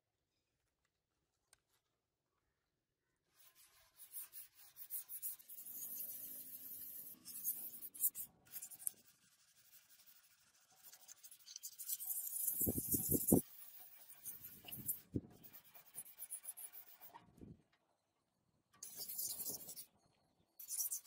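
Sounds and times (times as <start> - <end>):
sandpaper rubbing on metal: 3.3 - 17.1, 18.8 - 19.8, 20.6 - 21.0.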